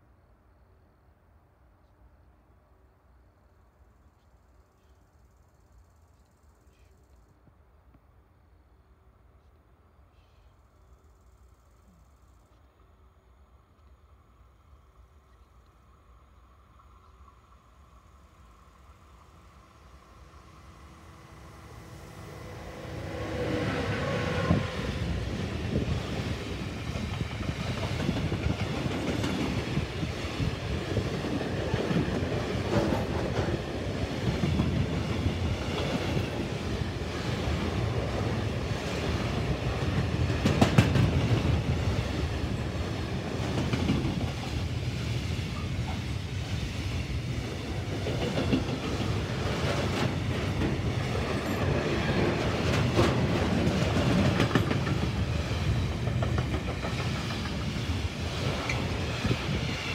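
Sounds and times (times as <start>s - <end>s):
steel wheels rumbling on rails: 19.3s - 59.9s
wheels clacking over rail joints: 37.1s - 44.7s, 47.8s - 59.9s.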